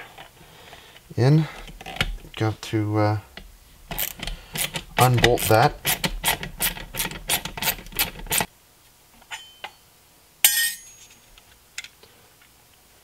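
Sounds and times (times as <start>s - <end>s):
socket ratchet clicking: 3.9s - 8.5s.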